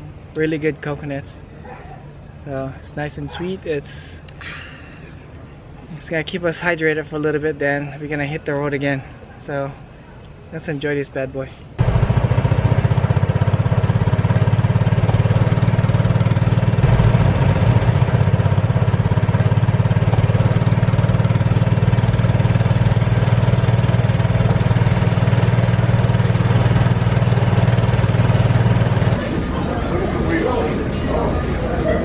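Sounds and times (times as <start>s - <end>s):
golf cart engine running: 11.8s - 30.2s.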